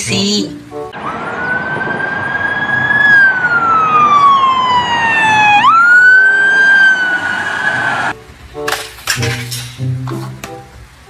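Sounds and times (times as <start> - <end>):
road noise: 0.0 - 11.0
police siren wailing: 0.9 - 8.2.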